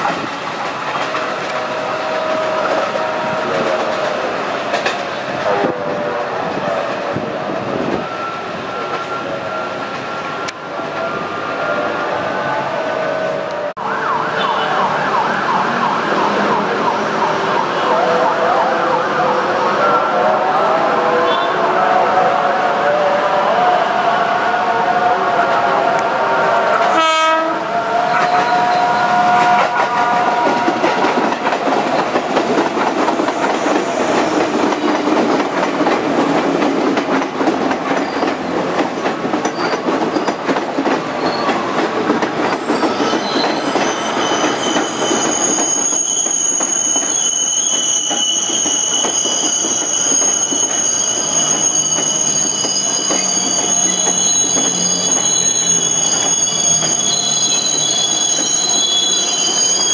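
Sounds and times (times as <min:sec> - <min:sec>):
train rumble and wheel clatter: 0:00.0 - 0:13.8, 0:14.8 - 0:59.9
train horn tones: 0:01.0 - 0:08.2, 0:17.7 - 0:31.5
train wheels squealing: 0:07.4 - 0:11.5, 0:28.1 - 0:31.1, 0:37.9 - 0:38.4, 0:39.4 - 0:40.4, 0:41.0 - 0:41.8, 0:42.4 - 0:59.9.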